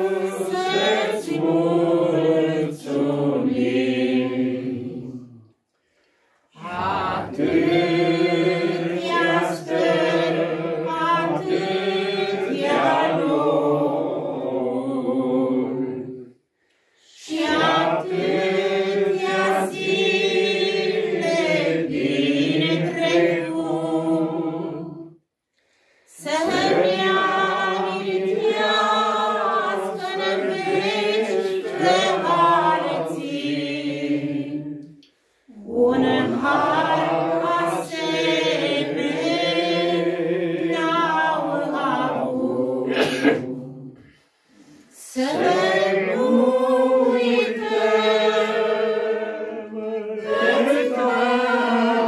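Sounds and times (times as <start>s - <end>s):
men singing a hymn unaccompanied: 0.0s - 5.4s, 6.6s - 16.1s, 26.2s - 34.9s, 35.5s - 44.2s, 45.2s - 52.0s.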